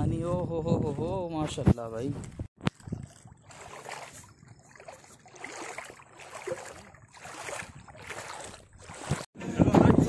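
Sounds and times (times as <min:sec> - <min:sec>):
hand splashing water: 0:02.7 - 0:09.3.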